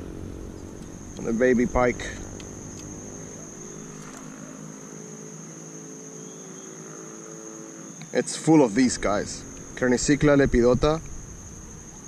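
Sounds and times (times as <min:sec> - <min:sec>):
faint low drone: 0:00.0 - 0:05.1, 0:08.7 - 0:12.0
insects chirping: 0:00.0 - 0:12.0.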